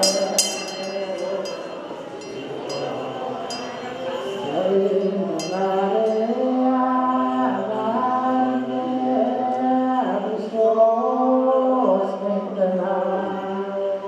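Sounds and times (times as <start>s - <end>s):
small brass hand bell ringing: 0.0s - 6.2s
men singing a liturgical chant: 0.1s - 14.0s.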